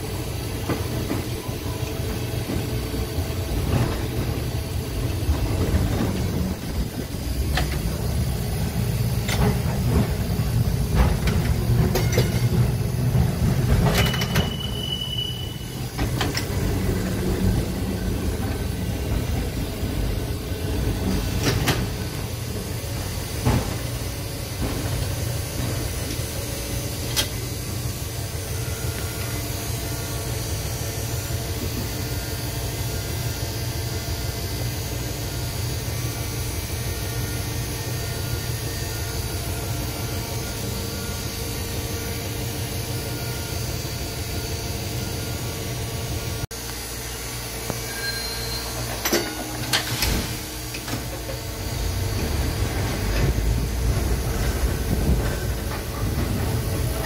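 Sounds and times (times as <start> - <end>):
streetcar wheels rumbling: 0.0 - 46.6, 48.7 - 57.0.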